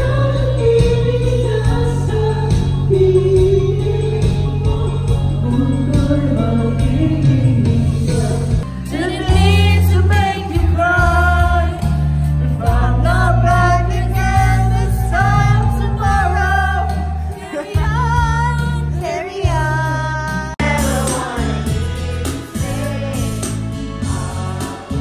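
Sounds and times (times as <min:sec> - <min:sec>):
backing track with bass: 0:00.0 - 0:25.0
man singing into microphone: 0:05.4 - 0:08.6.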